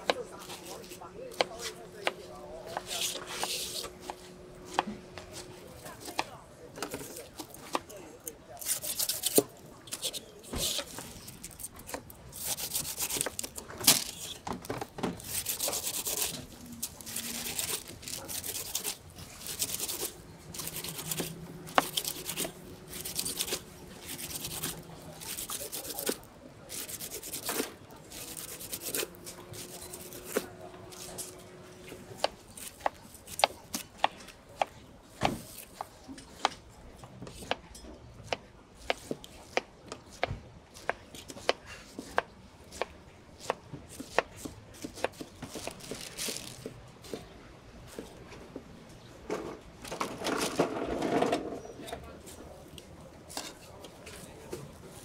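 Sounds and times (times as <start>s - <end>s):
knife rasping through pineapple rind: 0.1s - 3.9s, 8.6s - 14.4s, 15.2s - 34.7s, 38.3s - 47.2s.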